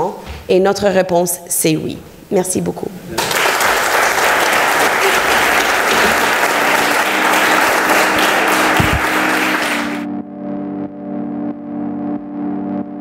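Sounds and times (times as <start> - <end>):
audience applauding: 3.2 - 10.1
music: 5.0 - 13.0.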